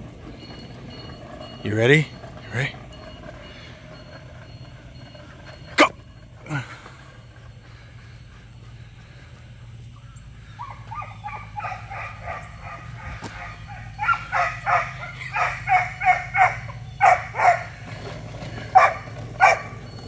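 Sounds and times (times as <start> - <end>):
low steady hum: 0.0 - 20.0
puppy barking: 10.6 - 17.8, 18.6 - 19.8.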